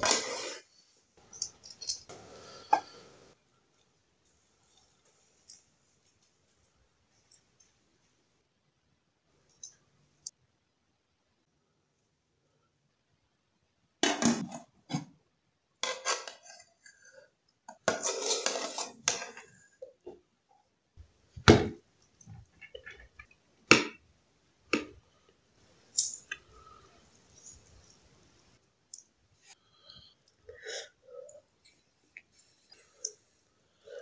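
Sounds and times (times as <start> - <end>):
ladle scraping a pot: 17.8 - 19.5.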